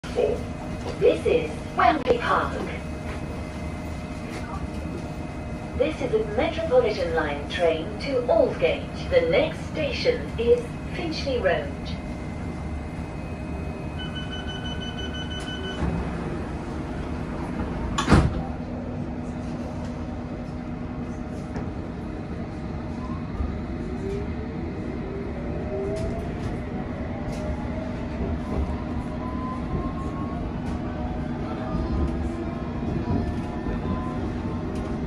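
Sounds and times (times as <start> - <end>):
train rumble: 0.0 - 35.0
door-closing beeps: 14.0 - 16.0.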